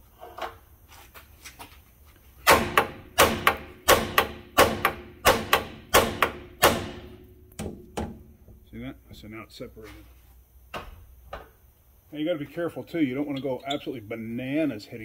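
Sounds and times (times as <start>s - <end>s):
hammer striking steel: 2.5s - 8.4s.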